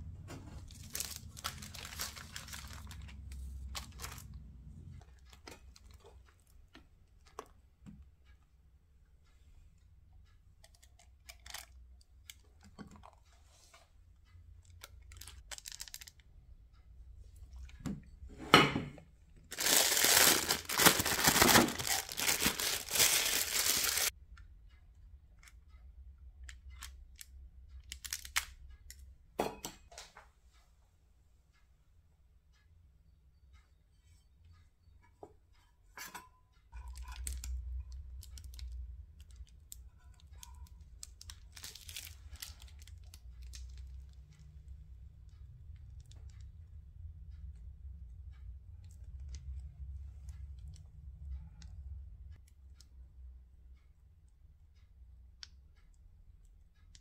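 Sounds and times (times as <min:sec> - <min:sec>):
baking paper rustling: 0:00.5 - 0:04.3, 0:19.5 - 0:24.1, 0:41.1 - 0:43.6
plastic piping bag crinkling: 0:00.6 - 0:04.3, 0:14.8 - 0:16.2, 0:19.5 - 0:24.1, 0:27.8 - 0:28.5, 0:40.4 - 0:43.8.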